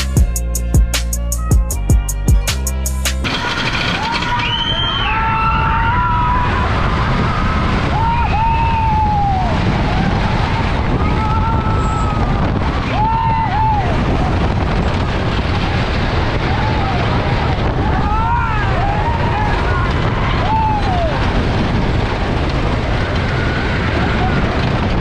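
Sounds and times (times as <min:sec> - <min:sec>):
roller coaster rumbling clatter: 0:03.2 - 0:25.0
wind on microphone: 0:05.0 - 0:25.0.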